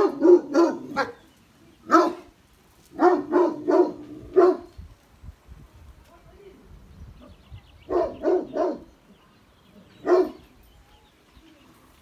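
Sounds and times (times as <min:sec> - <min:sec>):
dog barking: 0:00.0 - 0:01.2, 0:01.9 - 0:02.3, 0:03.0 - 0:04.7, 0:07.9 - 0:08.9, 0:10.0 - 0:10.4.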